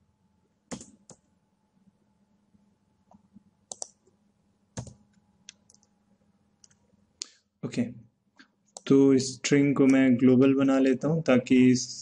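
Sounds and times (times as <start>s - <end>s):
faint steady hum: 0.0s - 12.0s
computer keyboard keystrokes: 0.7s - 1.2s, 3.1s - 4.0s, 4.8s - 5.9s.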